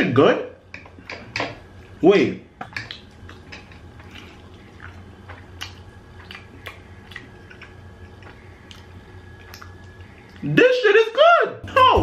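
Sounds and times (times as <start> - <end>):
man chewing food: 2.6 - 10.5
low hum: 11.6 - 12.0.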